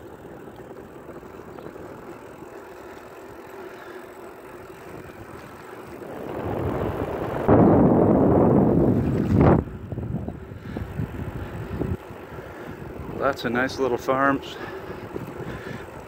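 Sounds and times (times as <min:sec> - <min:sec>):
wind rushing over microphone: 0:06.0 - 0:13.4.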